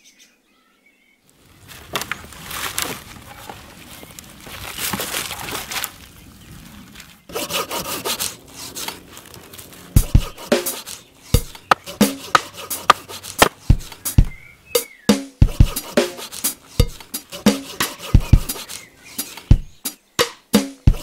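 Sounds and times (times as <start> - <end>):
pruning saw cutting branch: 7.3 - 14.0.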